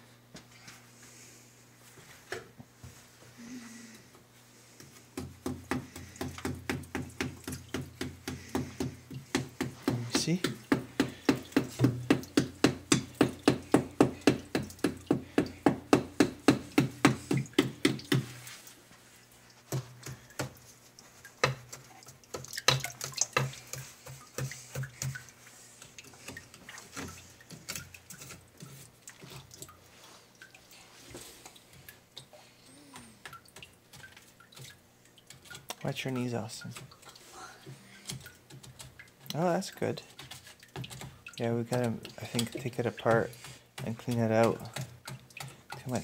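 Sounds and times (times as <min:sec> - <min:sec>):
pipe knocking rhythmically: 0:05.2 - 0:18.3.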